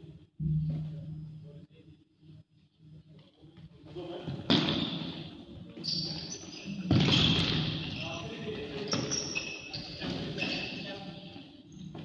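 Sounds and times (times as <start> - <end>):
sneakers squeaking on floor: 5.8 - 11.0.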